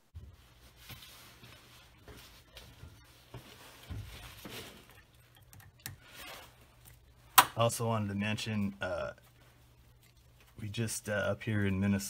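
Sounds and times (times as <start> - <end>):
low steady hum: 0.0 - 12.0
gloved hand rustling: 0.1 - 5.3.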